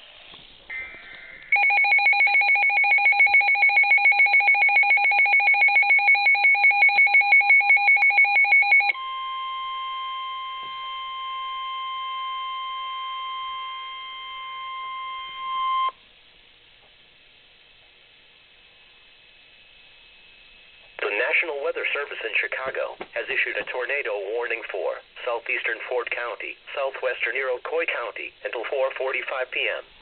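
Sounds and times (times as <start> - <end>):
rapid loud beeping: 0.7 - 9.0
long warning alarm tone: 0.7 - 15.9.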